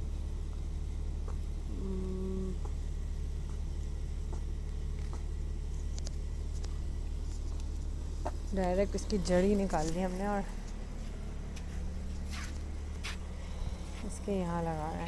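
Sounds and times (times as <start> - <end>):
low background hum: 0.0 - 15.0
person humming: 1.7 - 2.8
hands working loose soil: 9.2 - 14.2.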